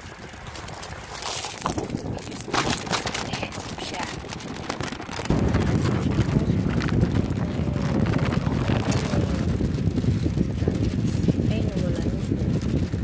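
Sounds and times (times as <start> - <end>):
wind buffeting microphone: 0.0 - 13.0
plastic packets crinkling: 0.1 - 5.4.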